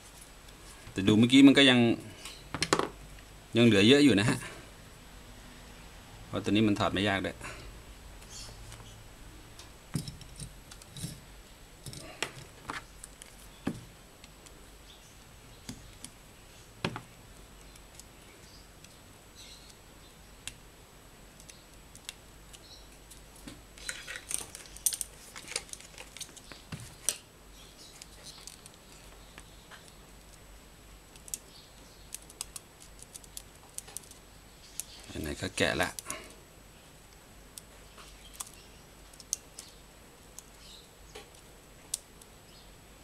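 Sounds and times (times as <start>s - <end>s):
clicks and rattles of small parts: 9.9s - 11.2s, 11.8s - 13.4s, 21.4s - 27.2s, 28.0s - 28.8s, 32.1s - 35.0s.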